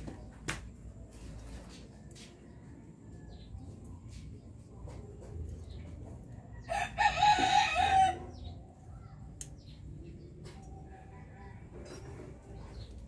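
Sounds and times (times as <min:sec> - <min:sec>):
rooster crowing: 0:06.6 - 0:08.4.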